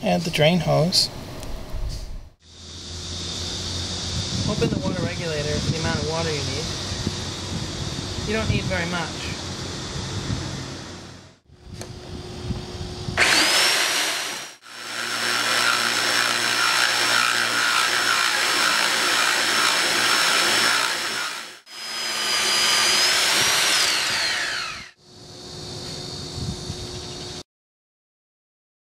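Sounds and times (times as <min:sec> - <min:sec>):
core drill motor whine: 0:02.4 - 0:27.4
drill bit grinding into tile: 0:13.2 - 0:25.0.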